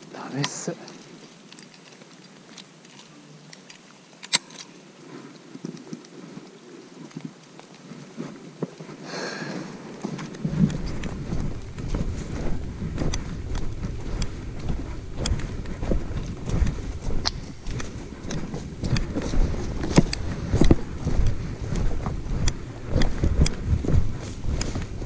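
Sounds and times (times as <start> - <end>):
footsteps on dirt path: 0.0 - 25.0
steady low rumble: 9.6 - 25.0.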